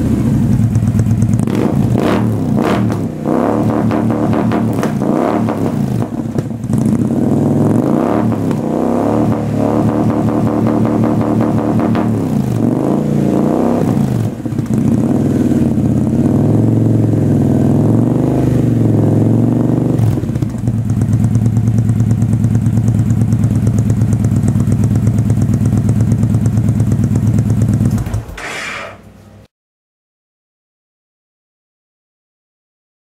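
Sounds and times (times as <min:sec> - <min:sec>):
motorcycle engine idling: 0:00.0 - 0:07.8, 0:12.6 - 0:28.4
motorcycle engine revving: 0:00.0 - 0:29.3.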